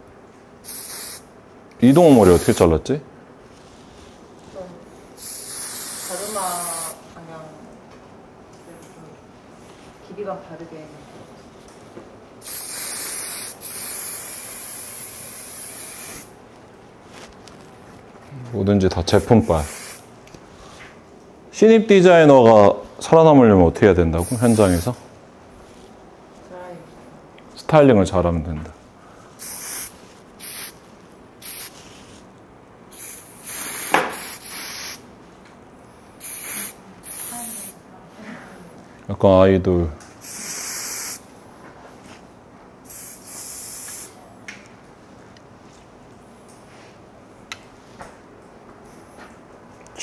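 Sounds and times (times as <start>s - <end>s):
aerosol hair spray hissing: 0.6s - 2.7s, 5.2s - 7.0s, 12.4s - 16.4s, 19.1s - 20.1s, 24.2s - 25.0s, 29.4s - 30.8s, 31.4s - 31.9s, 32.9s - 35.0s, 36.2s - 37.8s, 40.2s - 41.3s, 42.9s - 44.2s.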